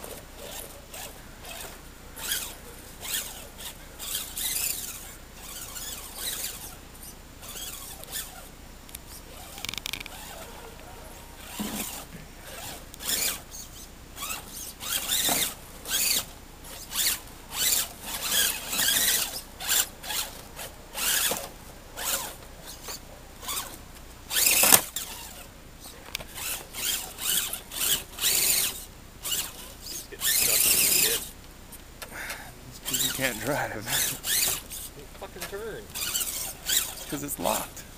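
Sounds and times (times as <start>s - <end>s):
electric motor and gears whining: 0.0s - 37.9s.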